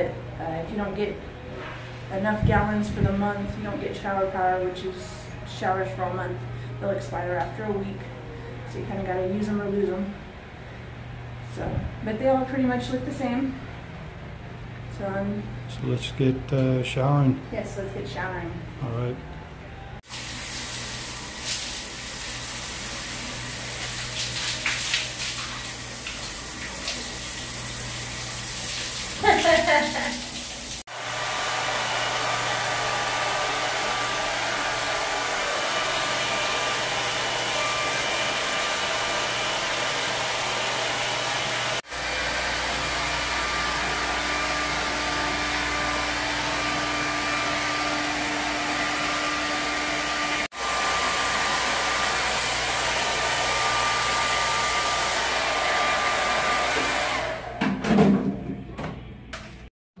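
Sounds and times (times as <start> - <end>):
hair dryer blowing: 20.1 - 57.7.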